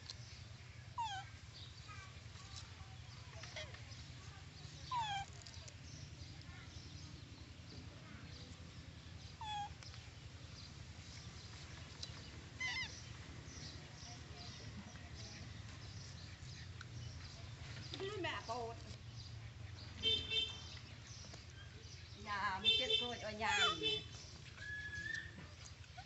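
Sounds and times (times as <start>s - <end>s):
monkey squeaky calls: 1.0s - 1.4s, 4.8s - 5.6s, 9.3s - 9.9s, 12.5s - 13.1s, 23.0s - 26.0s.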